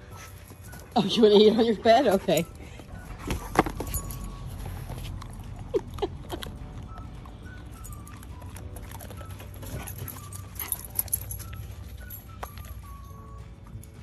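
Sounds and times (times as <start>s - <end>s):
dog chewing crunchy treat: 2.7s - 13.3s.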